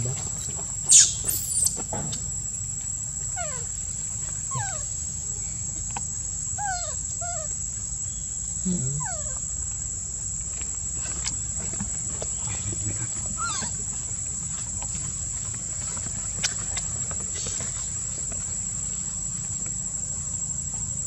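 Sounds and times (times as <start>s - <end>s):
high-pitched insect drone: 0.0s - 2.3s, 4.5s - 9.9s
baby monkey crying: 13.4s - 13.8s.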